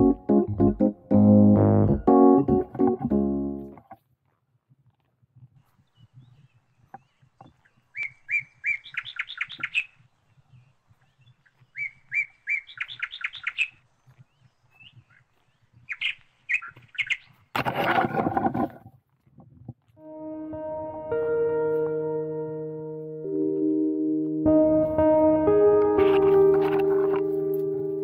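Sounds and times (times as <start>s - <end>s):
songbird singing: 5.6s - 17.4s.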